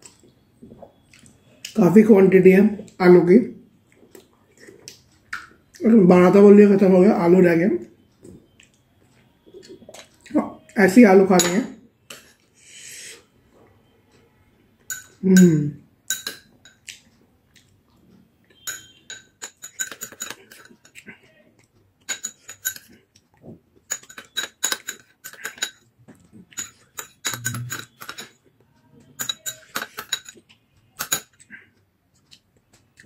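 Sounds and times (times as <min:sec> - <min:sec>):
metal spoon clinking on ceramic bowl: 0:11.4 - 0:12.3, 0:14.9 - 0:16.9, 0:18.6 - 0:21.0, 0:22.0 - 0:23.0, 0:23.9 - 0:25.9, 0:26.5 - 0:28.4, 0:29.0 - 0:31.4.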